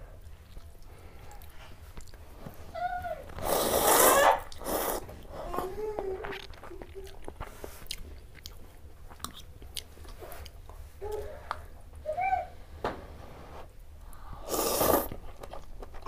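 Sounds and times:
chewing: 0:00.2 - 0:02.6, 0:04.4 - 0:11.6, 0:14.8 - 0:16.0
person slurping soup: 0:03.4 - 0:05.1, 0:14.4 - 0:15.2.

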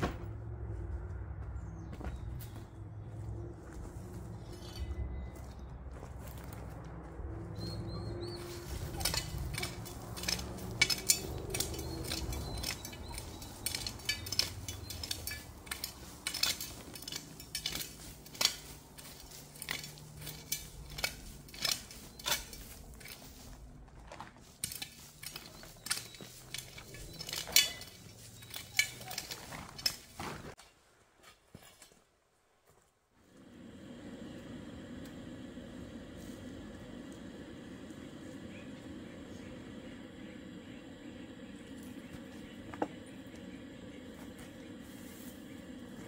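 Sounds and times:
shovel scraping stony ground: 0:04.3 - 0:05.4, 0:08.2 - 0:32.1
sharp metal clinks: 0:08.4 - 0:23.2, 0:24.6 - 0:30.1.

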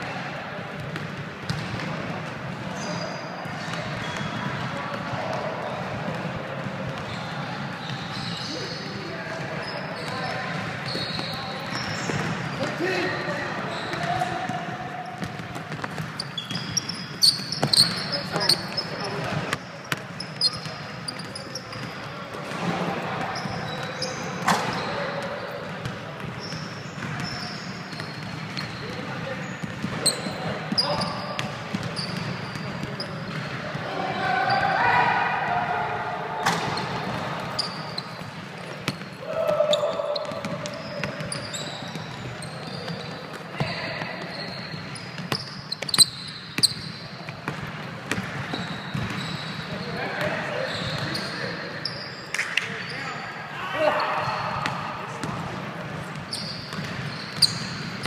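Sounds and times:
basketball bouncing: 0:00.8 - 0:02.8, 0:15.2 - 0:23.8, 0:29.6 - 0:33.6, 0:43.6 - 0:49.5, 0:54.6 - 0:58.0
sneakers squeaking on hardwood: 0:00.8 - 0:35.3, 0:36.4 - 0:58.0.

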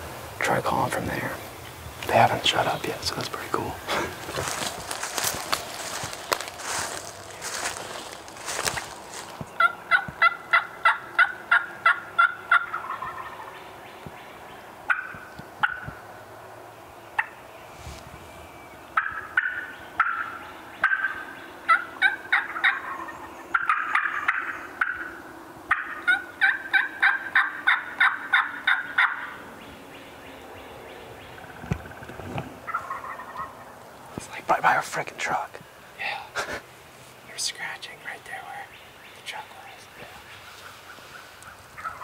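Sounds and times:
turkey gobbles: 0:08.4 - 0:13.5, 0:19.0 - 0:29.4, 0:31.4 - 0:33.8, 0:40.6 - 0:42.0
turkey hen yelps: 0:09.6 - 0:13.5, 0:14.9 - 0:15.9, 0:19.0 - 0:29.4, 0:32.7 - 0:33.6, 0:41.8 - 0:42.0.

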